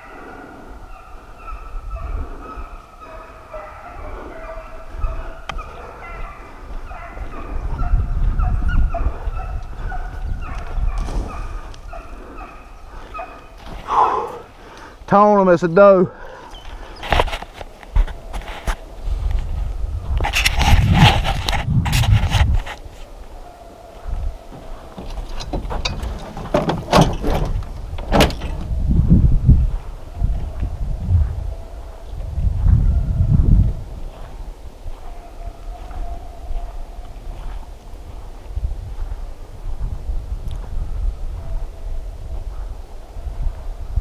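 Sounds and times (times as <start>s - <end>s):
hounds baying: 0.0s - 14.6s, 34.9s - 37.7s
low rumble of movement: 24.1s - 34.6s
sharp knocks and rattles: 25.0s - 28.7s.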